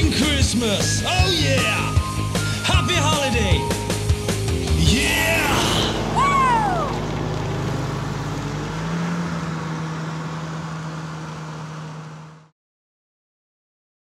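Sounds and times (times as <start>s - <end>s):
snowmobile engine running: 0.0s - 12.5s
whistle rising and falling: 5.0s - 7.0s.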